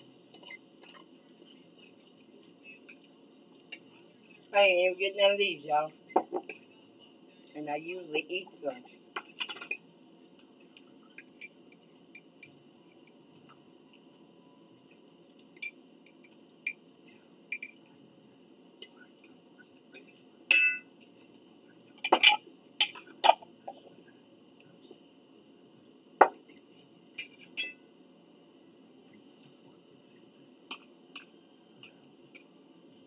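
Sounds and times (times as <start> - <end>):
faint steady hum: 0.0 - 33.0
tableware clinking: 0.3 - 1.6, 6.2 - 6.7, 9.2 - 9.9, 11.0 - 16.8, 17.5 - 17.9, 18.8 - 23.5, 27.1 - 27.9.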